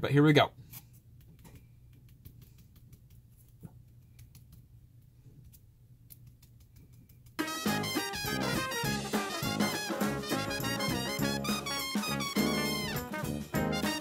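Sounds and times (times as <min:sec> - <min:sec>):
paintbrush tapping: 0:01.1 - 0:07.4.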